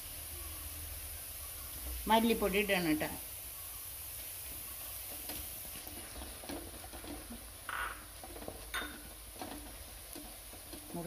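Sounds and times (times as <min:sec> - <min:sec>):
food frying in a pan: 0:00.0 - 0:11.0
utensil scraping a pan: 0:05.0 - 0:11.0.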